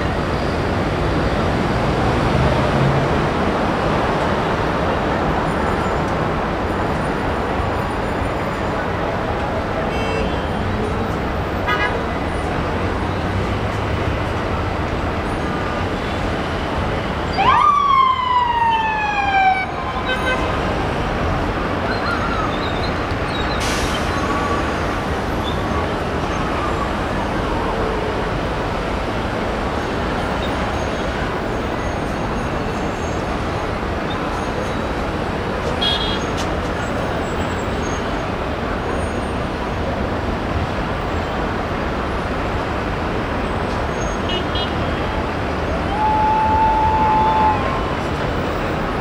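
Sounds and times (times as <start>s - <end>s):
traffic noise: 0.0s - 49.0s
siren whoop: 17.3s - 20.3s, 45.8s - 48.2s.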